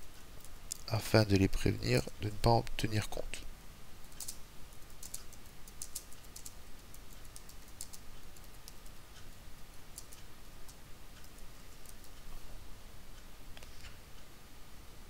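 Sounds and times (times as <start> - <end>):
computer keyboard keys clicking: 4.0 - 9.0, 9.9 - 12.2.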